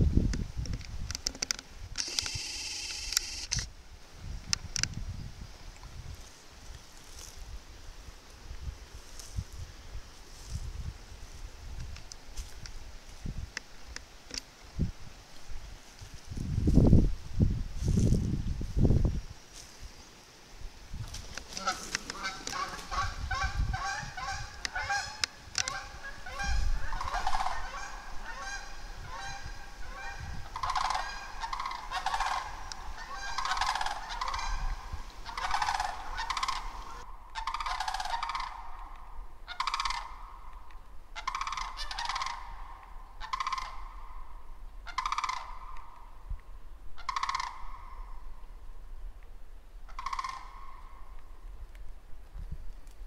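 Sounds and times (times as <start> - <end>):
geese honking: 21.5 - 38.9, 39.5 - 40.4, 41.2 - 44.1, 44.8 - 45.7, 47.0 - 48.0, 49.9 - 50.8.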